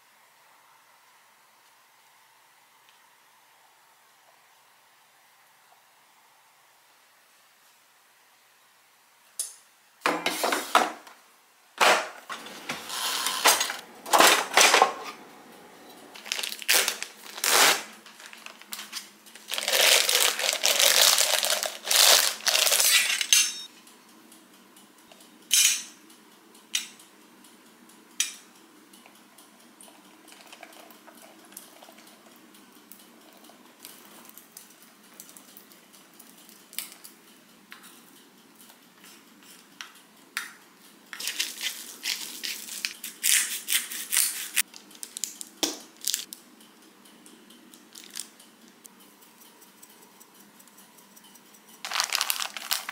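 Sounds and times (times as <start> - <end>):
dishes and utensils clattering: 11.8 - 15.2, 22.6 - 23.7.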